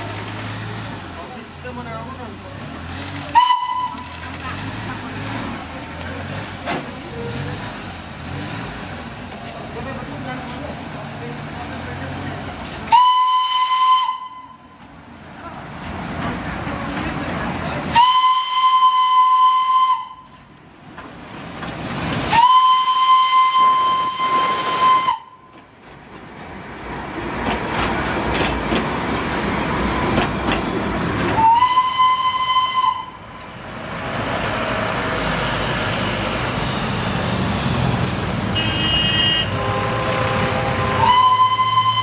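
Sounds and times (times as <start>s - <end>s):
train running noise: 0.0s - 42.0s
steam locomotive whistle: 3.2s - 4.3s, 12.9s - 14.8s, 17.9s - 20.4s, 22.3s - 25.5s, 31.4s - 33.3s, 38.6s - 42.0s
steam hissing: 21.3s - 25.3s.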